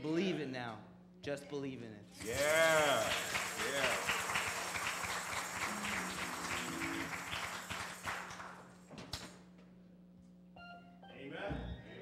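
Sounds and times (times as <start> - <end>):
congregation clapping: 2.2 - 9.4.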